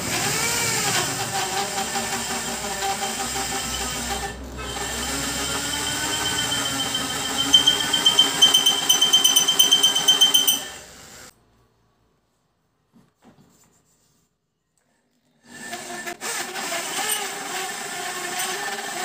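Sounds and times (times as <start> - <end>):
electric rotary tool grinding: 0.0 - 10.6.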